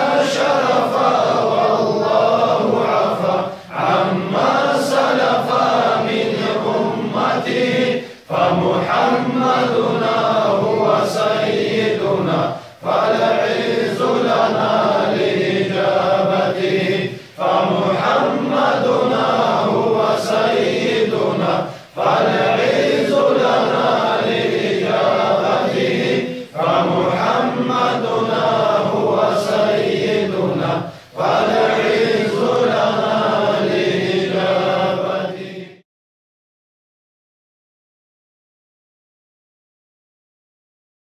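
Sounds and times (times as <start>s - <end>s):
chanted devotional song: 0.0s - 35.8s.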